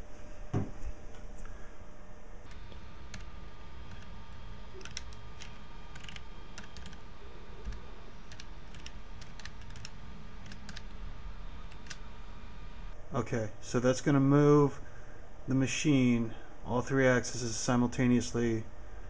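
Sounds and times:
low steady hum: 0.0 - 19.0
keyboard key clicks: 4.8 - 7.0, 7.6 - 10.9.

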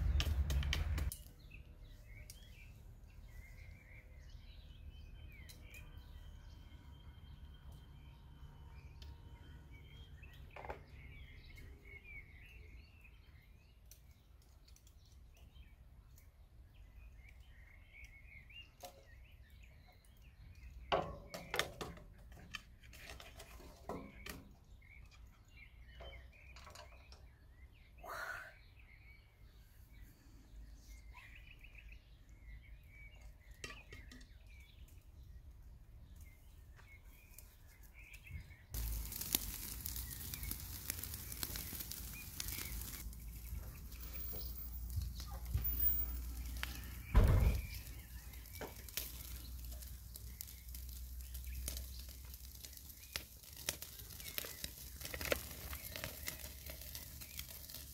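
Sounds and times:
small birds chirping: 0.0 - 57.9
steady hiss: 38.8 - 44.8.

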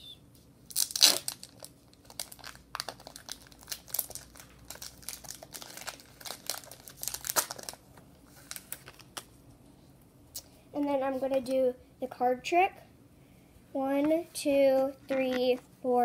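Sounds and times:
foil wrapper crinkling and tearing: 0.7 - 9.2.

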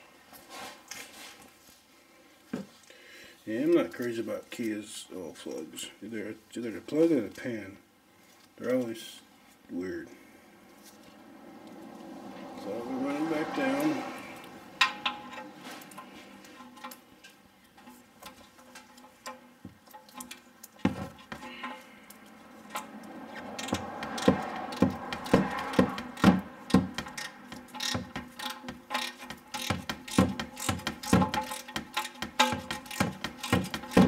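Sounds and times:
hand ratchet clicking: 23.6 - 34.0.

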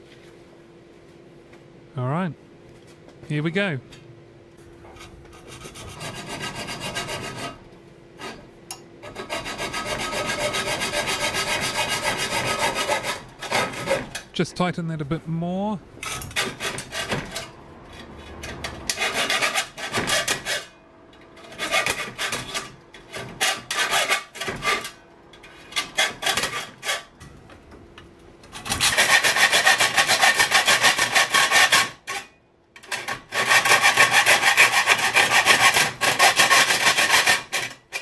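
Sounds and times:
hacksaw cutting metal: 5.0 - 7.6, 8.2 - 14.3, 16.0 - 27.2, 28.5 - 38.0
person talking: 14.3 - 15.9.

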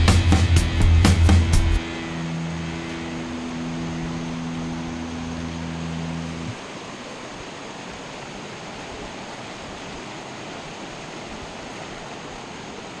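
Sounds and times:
low steady hum: 0.9 - 7.5
river water rushing over concrete: 1.8 - 13.0.

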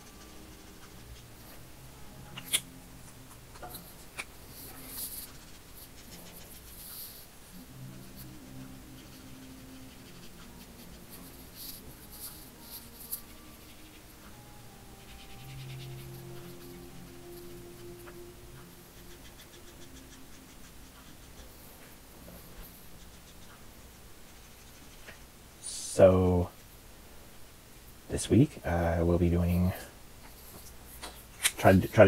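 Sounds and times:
marker scratching on paper: 0.0 - 25.3.

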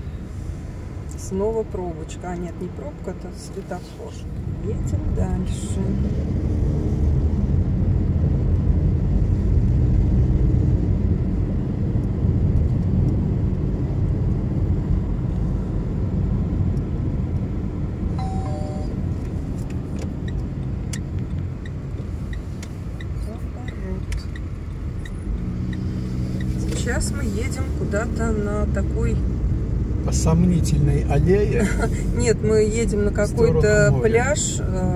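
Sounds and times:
car road and engine rumble: 0.0 - 34.9
short tone: 18.1 - 19.0.

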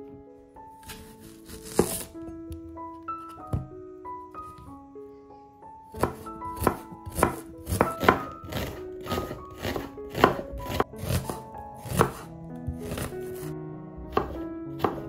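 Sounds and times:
knife slicing onion on board: 0.8 - 2.2, 6.0 - 13.5, 14.1 - 15.0.

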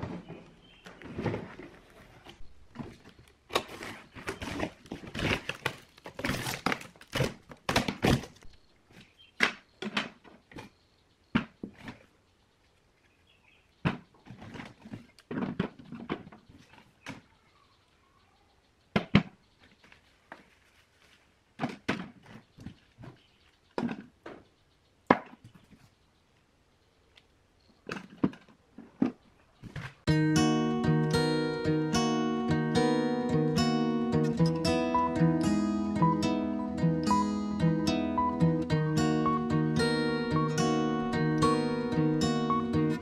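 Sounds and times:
packing tape tearing: 3.5 - 8.5.

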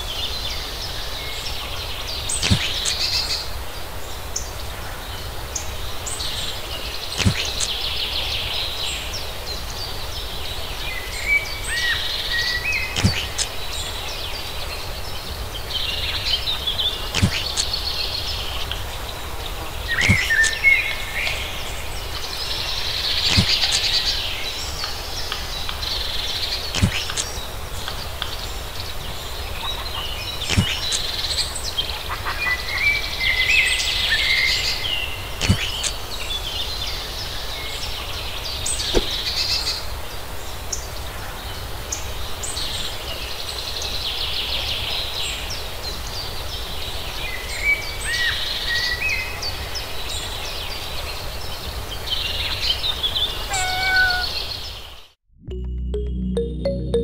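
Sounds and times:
birds chirping and calling: 53.4 - 54.5.

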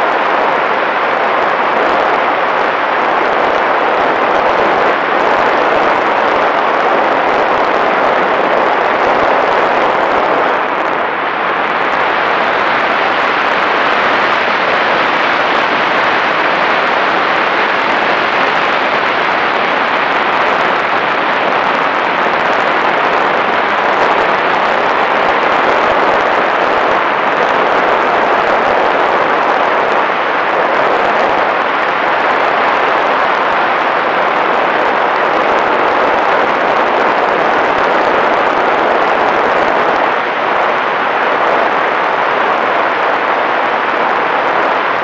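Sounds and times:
propeller noise: 0.0 - 32.1.

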